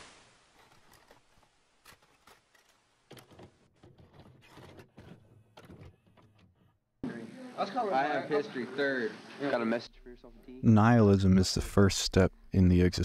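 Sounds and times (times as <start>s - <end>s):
hiss: 0.0s - 0.6s.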